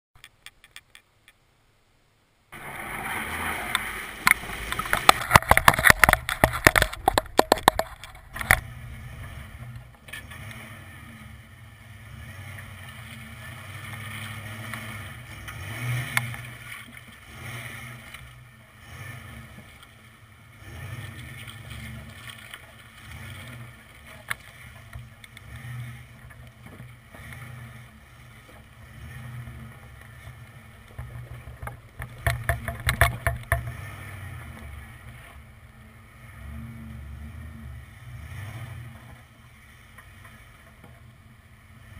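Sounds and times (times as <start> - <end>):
wind: 0.1 - 41.9
crackling and clicks: 0.2 - 1.4, 3.6 - 8.8, 15.4 - 17.2, 21.2 - 27.5, 29.4 - 35.8
truck engine running: 2.5 - 41.9
tyre rumble: 2.6 - 11.1.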